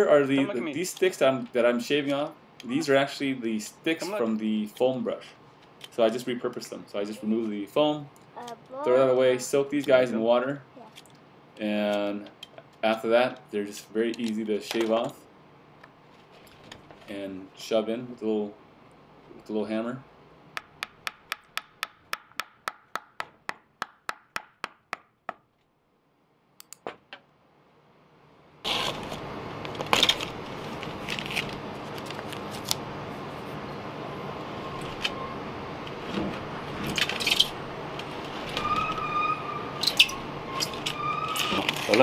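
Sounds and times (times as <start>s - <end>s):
hammer tapping wood: 20.6s - 25.4s
masking tape peeling: 28.6s - 32.8s, 36.9s - 42.0s.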